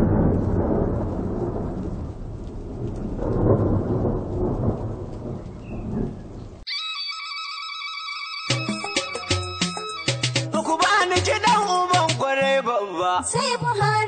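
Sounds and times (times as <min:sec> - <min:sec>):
steady rain: 0:00.0 - 0:06.6
thunder rumbling: 0:00.0 - 0:06.6
high-pitched music tones: 0:06.7 - 0:11.3.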